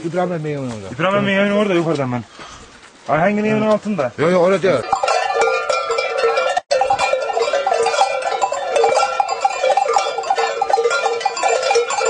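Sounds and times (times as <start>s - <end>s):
metal bells clanging: 4.6s - 12.0s.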